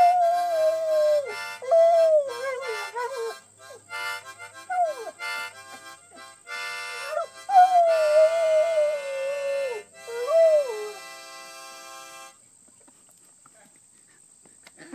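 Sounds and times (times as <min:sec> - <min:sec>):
dog howling: 0:00.0 - 0:03.4, 0:04.7 - 0:05.2, 0:07.0 - 0:11.0
harmonica chords: 0:00.0 - 0:12.4.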